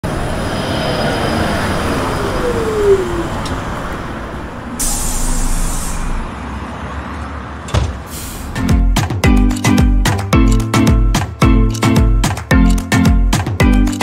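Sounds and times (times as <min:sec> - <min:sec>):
bus engine running: 0:00.0 - 0:14.0
falling tone: 0:00.4 - 0:06.2
air brake hiss: 0:04.8 - 0:06.3, 0:08.0 - 0:08.6.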